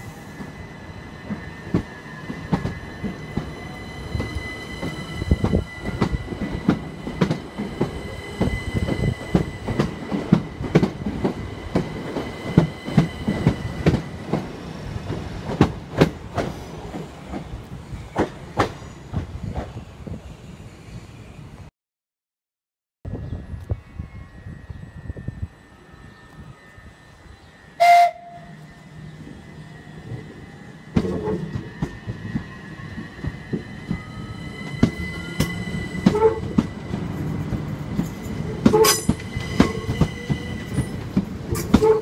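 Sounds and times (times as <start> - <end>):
electric train whine: 0.0 - 21.7, 23.1 - 42.0
train wheels clicking over rail joints: 30.9 - 42.0.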